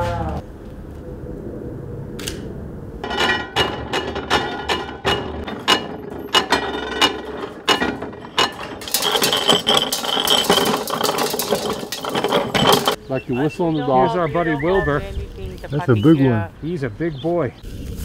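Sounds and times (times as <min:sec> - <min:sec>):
hand-cranked mill rattling: 0:03.0 - 0:13.0
hand-cranked machinery clicking: 0:03.1 - 0:13.0.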